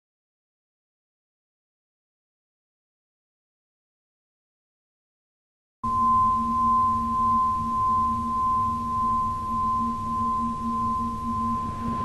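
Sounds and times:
steady high pure tone: 5.8s - 12.0s
low hum: 5.9s - 12.0s.

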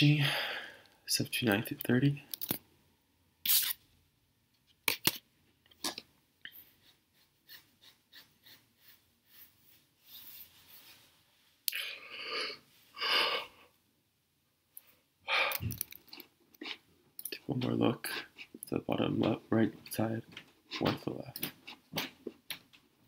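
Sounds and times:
person breathing: 0.0s - 1.0s, 11.7s - 13.8s, 14.8s - 15.8s
person sighing: 15.3s - 15.8s.

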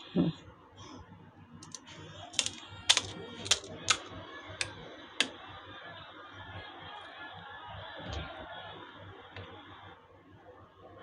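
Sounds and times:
sharp clicks of utensils: 2.4s - 5.3s.

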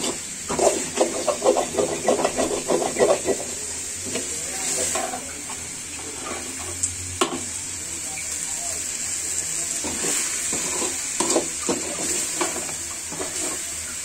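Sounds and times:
metal spoon scraping a pan: 0.0s - 5.2s, 6.0s - 6.8s, 9.8s - 14.0s
meat sizzling: 0.0s - 14.0s.

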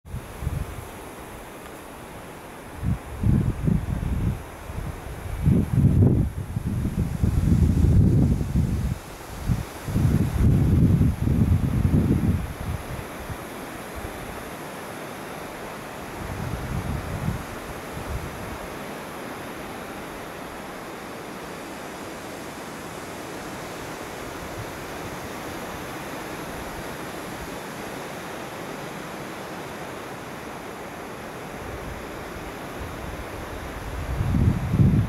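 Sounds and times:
wind buffeting microphone: 0.1s - 1.0s, 2.8s - 14.4s, 16.1s - 18.7s, 31.6s - 35.0s
wind rustling wheat stalks: 0.1s - 35.0s.

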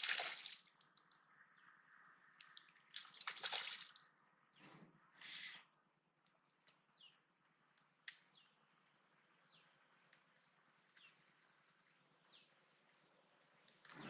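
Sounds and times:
faint bird chirps: 4.4s - 5.8s, 6.6s - 14.0s.

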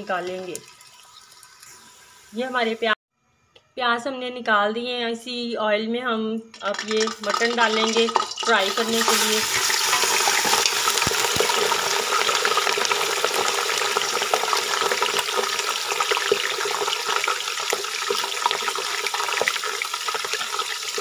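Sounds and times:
meat sizzling in hot oil: 0.0s - 2.4s, 6.7s - 21.0s.

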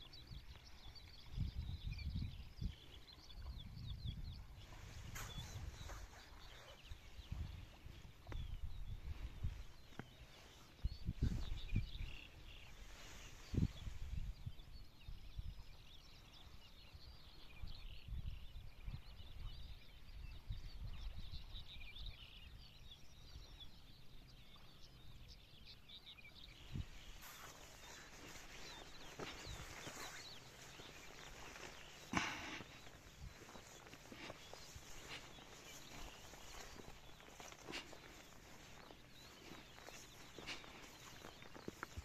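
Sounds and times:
small birds chirping: 0.0s - 42.0s
wind buffeting microphone: 1.2s - 15.7s, 26.4s - 42.0s.

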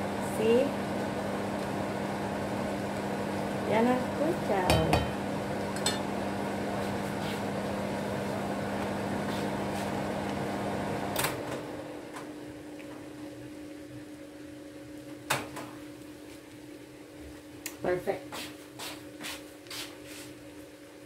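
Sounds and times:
kitchen fan humming: 0.0s - 21.0s.

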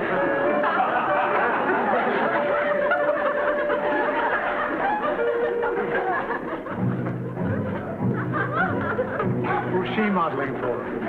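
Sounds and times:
audience laughter: 0.0s - 11.0s
background music with held notes: 0.0s - 11.0s.

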